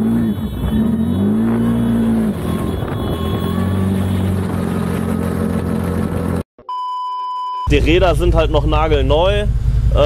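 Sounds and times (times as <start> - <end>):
engine revving: 0.0 - 6.4.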